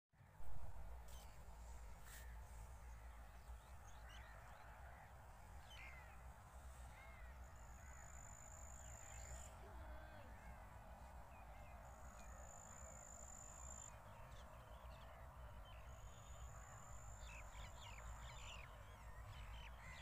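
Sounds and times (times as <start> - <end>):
birds calling faintly: 0.9 - 20.0.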